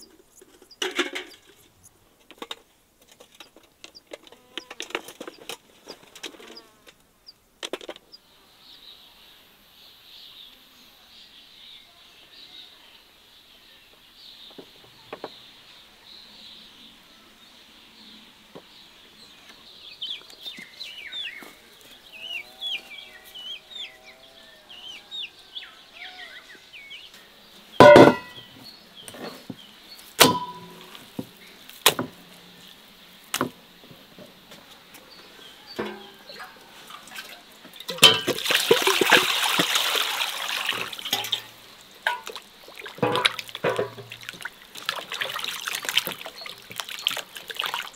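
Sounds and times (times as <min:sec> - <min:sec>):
birds calling: 0:00.0 - 0:02.5, 0:03.2 - 0:09.2, 0:13.4 - 0:47.9
sharp knocks: 0:27.8 - 0:28.4, 0:30.2 - 0:30.8
water running: 0:35.8 - 0:47.9.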